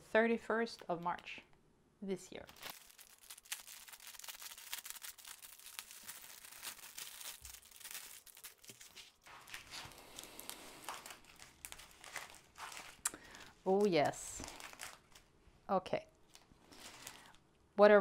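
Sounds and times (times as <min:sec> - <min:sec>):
plastic packaging crinkling: 0:02.4 - 0:15.3, 0:16.2 - 0:17.4.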